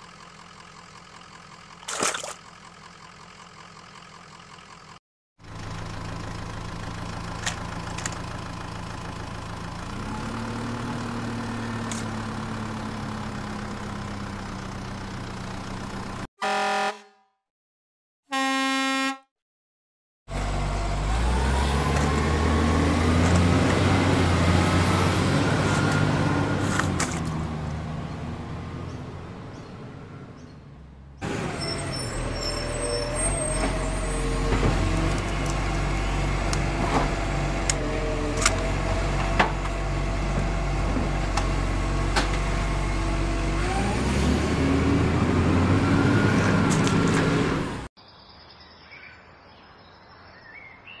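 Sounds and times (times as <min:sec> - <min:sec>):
truck engine revving: 0:05.4 - 0:16.3, 0:20.3 - 0:47.9
faint outdoor background: 0:48.0 - 0:51.0.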